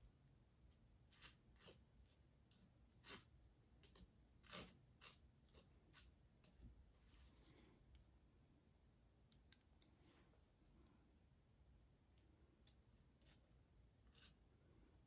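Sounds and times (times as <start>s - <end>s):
palette knife scraping on canvas: 1.1s - 6.5s, 13.2s - 14.5s.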